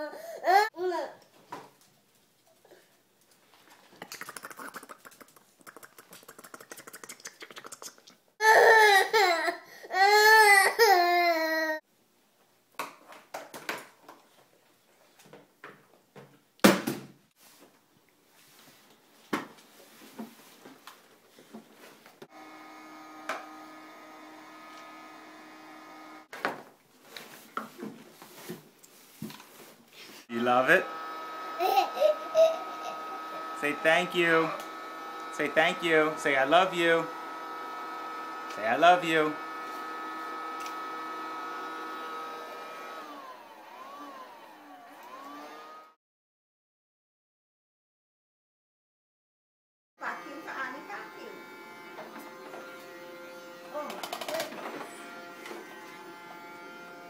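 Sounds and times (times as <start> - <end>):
toy vacuum cleaner humming: 22.3 - 26.3, 30.3 - 46.0, 50.0 - 57.0.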